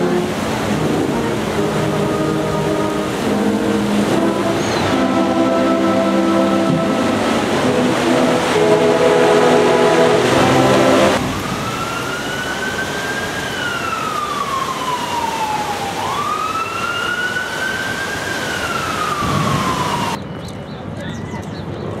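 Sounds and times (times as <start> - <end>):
concert band sustained chords: 0.0 - 11.2
emergency siren wailing: 0.0 - 20.2
steady background noise: 0.0 - 22.0.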